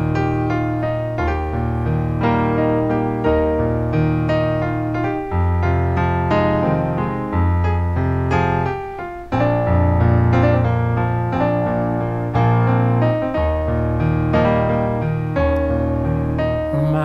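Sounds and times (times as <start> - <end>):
electronic keyboard piano chords: 0.0 - 17.0.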